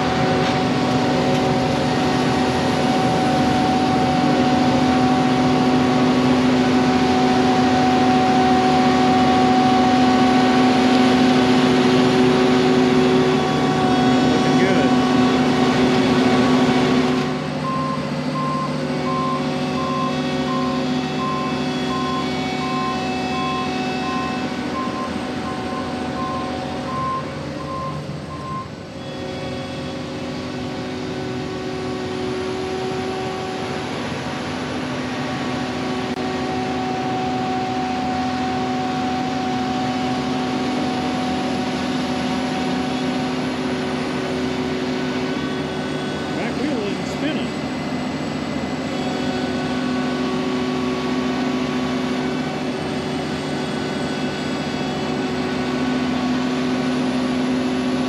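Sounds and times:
combine harvester engine running: 0.0s - 58.0s
warning alarm beeping: 17.6s - 30.2s.

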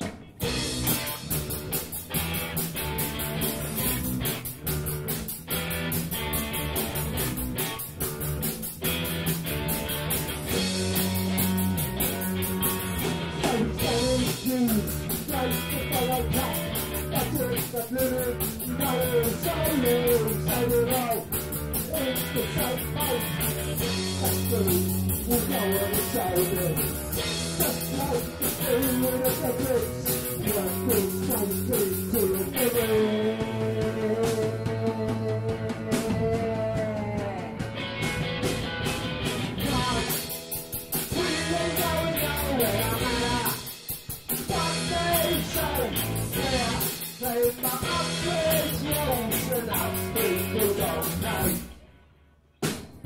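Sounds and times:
rock band playing: 0.0s - 51.9s
man singing: 13.0s - 37.8s, 39.6s - 40.3s, 41.1s - 43.8s, 44.4s - 51.8s.

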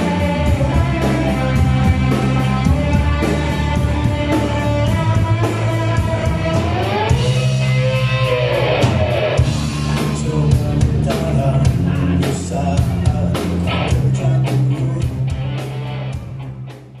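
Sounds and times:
drum kit hits: 0.0s - 16.5s
electric guitars: 0.0s - 17.0s
vocalist singing: 9.4s - 15.6s.

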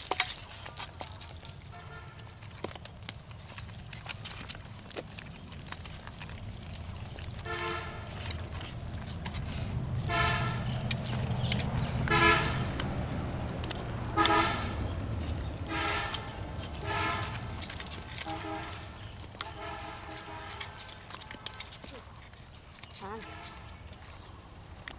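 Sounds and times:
steady low rumble: 2.2s - 21.5s
short horn toots: 7.4s - 8.1s, 15.7s - 17.5s, 18.2s - 20.9s.

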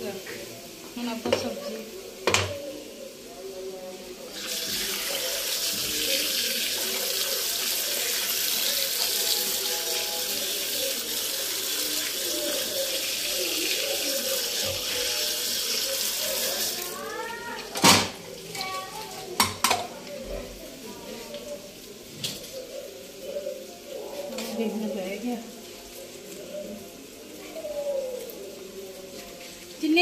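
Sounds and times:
vegetables rinsed by hand: 4.3s - 19.9s.

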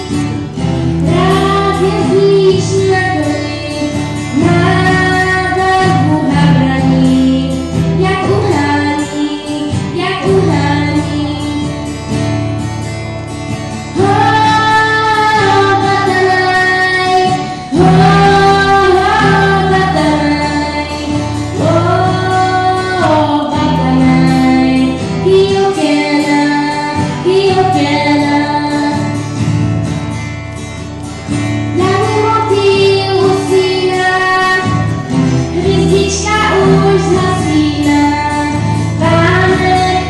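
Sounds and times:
electric guitar: 0.0s - 40.0s
woman singing long notes: 14.0s - 29.1s.

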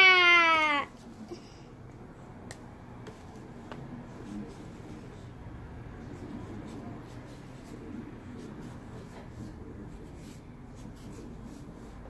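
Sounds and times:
marker scratching on paper: 6.1s - 12.0s.

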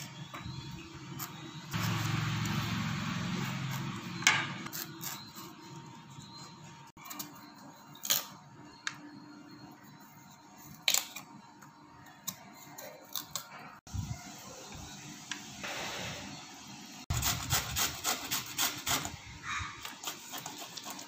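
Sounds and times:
knife scraping gourd rind: 1.0s - 8.4s, 12.0s - 13.6s, 17.1s - 21.0s
gourd grated on metal grater: 17.1s - 19.2s, 19.8s - 21.0s.

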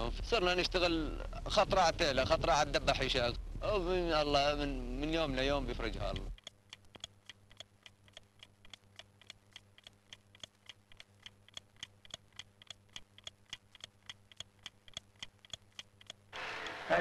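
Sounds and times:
low steady hum: 0.0s - 17.0s
clock ticking: 6.0s - 16.8s.

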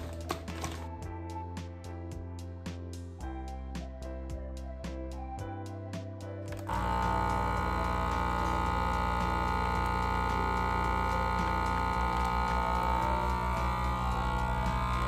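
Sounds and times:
vacuum sealer pump humming: 6.5s - 15.0s
low pulsing throb: 6.7s - 15.0s.

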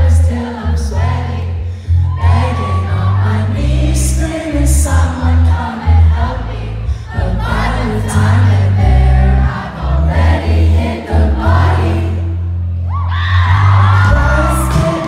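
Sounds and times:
crowd singing along: 0.0s - 15.0s
heavy bass notes: 0.0s - 15.0s
live pop band playing: 13.5s - 15.0s.

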